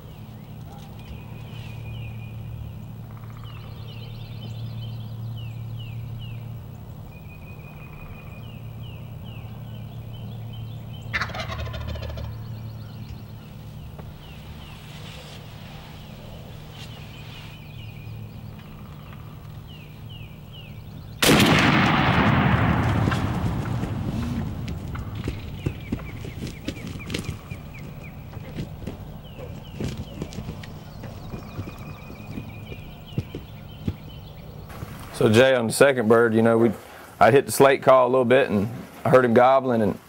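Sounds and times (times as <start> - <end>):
turkey gobbling: 11.1 - 12.5, 23.1 - 34.0.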